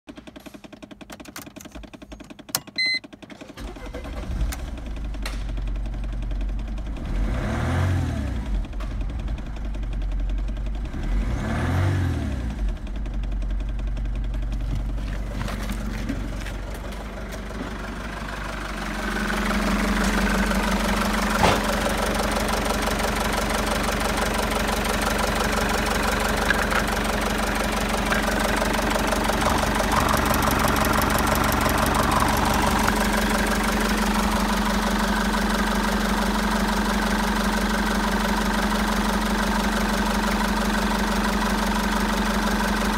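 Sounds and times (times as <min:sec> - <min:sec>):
diesel engine starting and idling: 0:00.1 - 0:42.9
engine revving: 0:06.8 - 0:09.4, 0:10.8 - 0:13.0, 0:24.7 - 0:36.4.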